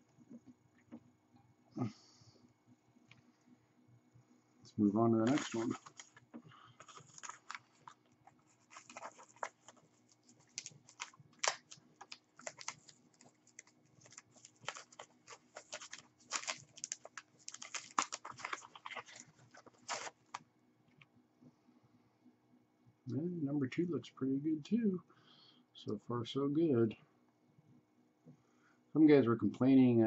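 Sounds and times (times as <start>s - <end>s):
plastic packaging crinkling: 5.2s - 20.4s.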